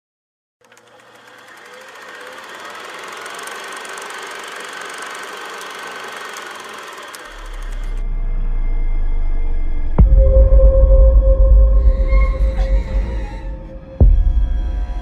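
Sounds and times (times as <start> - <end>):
film projector clatter: 0.6 - 8.0.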